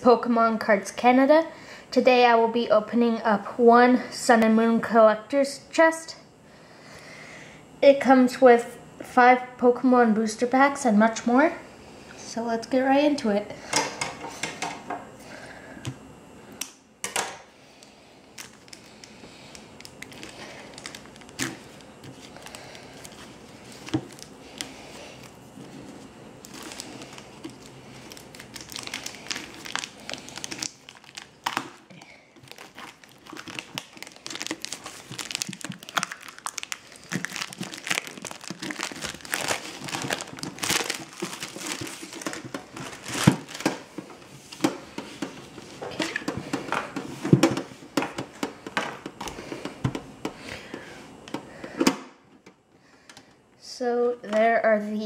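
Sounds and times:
plastic wrap crinkling: 18.2s - 47.0s.

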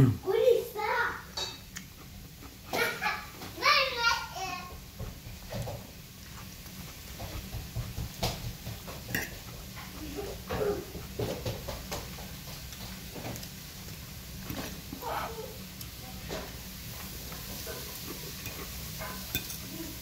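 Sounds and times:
man chewing: 1.7s - 3.4s, 5.7s - 16.0s
metal fork clicking on plate: 19.3s - 19.6s.

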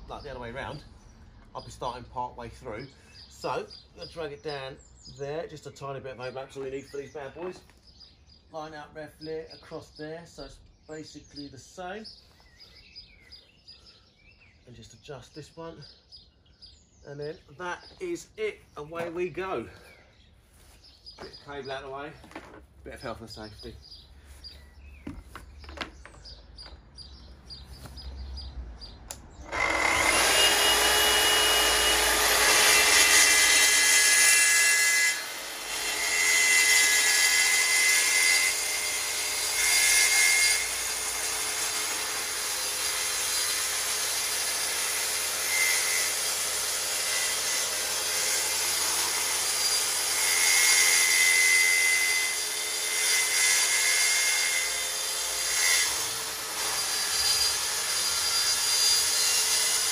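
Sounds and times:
track saw cutting board: 29.4s - 59.9s.

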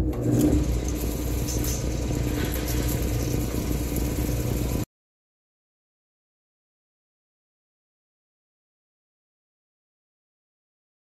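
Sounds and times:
machine motor humming: 0.0s - 4.8s.

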